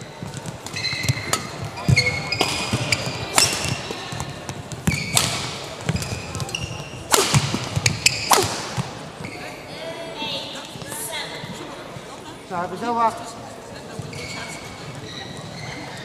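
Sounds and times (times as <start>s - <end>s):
shoes squeaking on court floor: 0.0s - 9.8s, 13.8s - 16.0s
rackets hitting shuttlecock: 0.3s - 9.3s.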